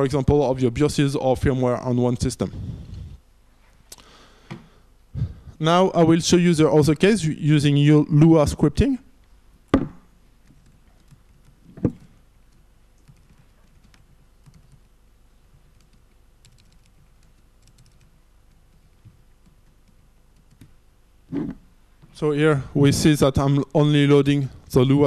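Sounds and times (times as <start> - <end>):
sharp knocks: 9.7 - 10.1
laptop keyboard typing: 10.4 - 20.8.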